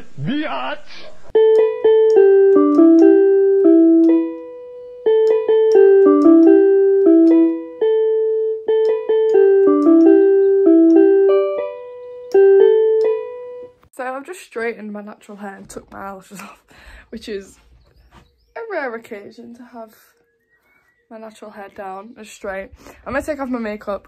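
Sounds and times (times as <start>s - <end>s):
electronic keyboard melody: 1.4s - 13.9s.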